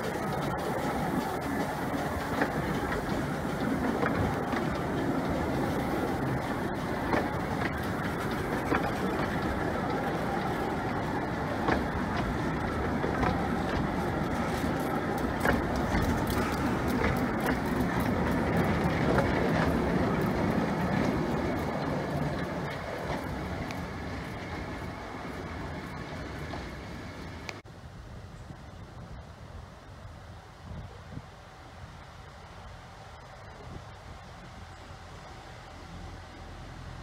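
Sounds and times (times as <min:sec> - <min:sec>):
rail joint clicks: 0:00.0 - 0:27.6
train wheels rumbling on rail: 0:00.0 - 0:27.7.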